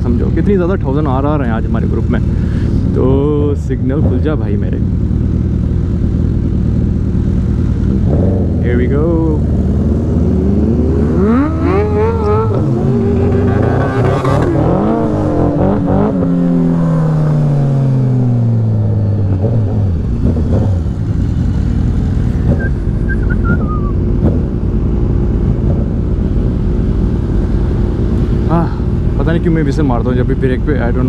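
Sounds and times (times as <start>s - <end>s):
other motorcycles idling: 0.0s - 9.9s
motorcycle engine accelerating: 0.0s - 31.0s
person whistling: 22.4s - 24.0s.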